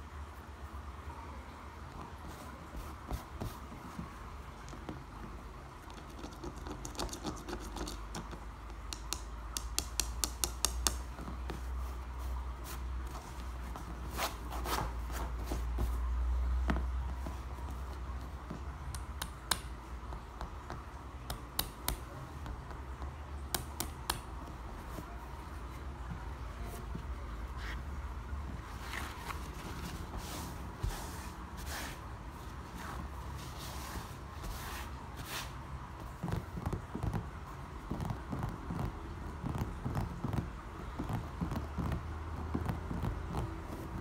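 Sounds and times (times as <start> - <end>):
fingernails tapping on tiles: 4.6 - 11.7, 18.4 - 25.1
tiles clicking on tabletop: 5.9 - 11.2.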